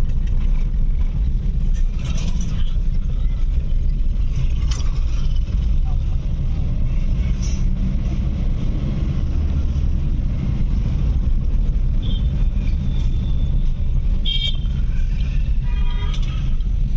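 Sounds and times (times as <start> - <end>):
car engine and tyre rumble: 0.0 - 16.9
vehicle horn beeping: 14.2 - 14.8.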